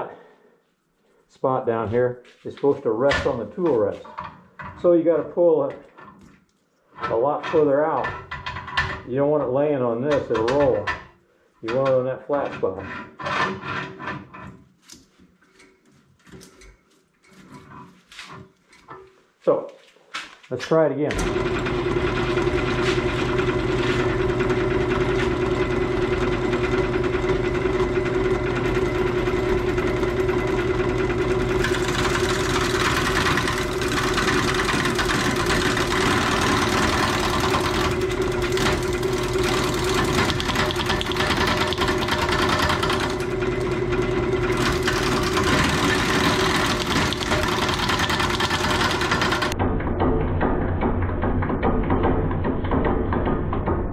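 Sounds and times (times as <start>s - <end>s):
lathe tool chattering: 21.1s - 49.6s
wood lathe humming: 21.1s - 49.6s.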